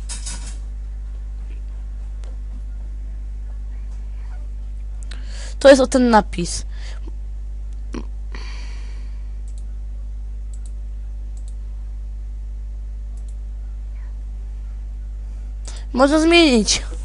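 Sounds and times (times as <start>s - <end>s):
steady low hum: 0.0s - 17.0s
computer mouse clicks: 9.5s - 9.7s, 10.5s - 10.8s, 11.4s - 11.6s, 13.2s - 13.4s.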